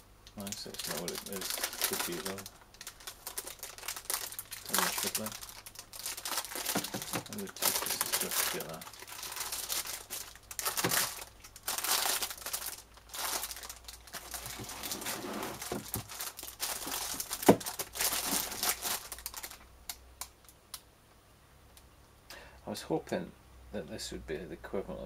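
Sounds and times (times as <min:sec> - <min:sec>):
plastic bags crinkling: 0:00.4 - 0:20.3.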